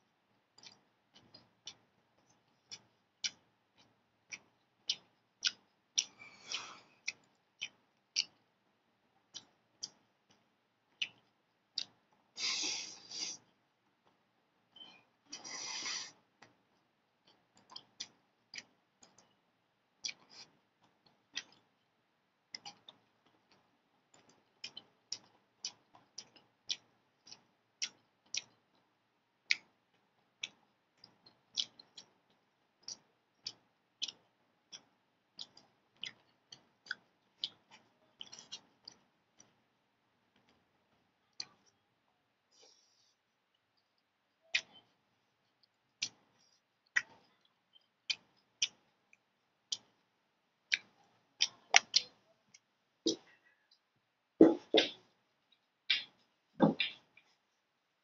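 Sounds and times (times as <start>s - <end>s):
chewing with lip smacks: 0.6s - 8.4s, 17.2s - 19.4s, 20.0s - 21.7s, 22.5s - 28.9s, 29.5s - 39.6s, 43.8s - 50.0s, 50.7s - 53.5s.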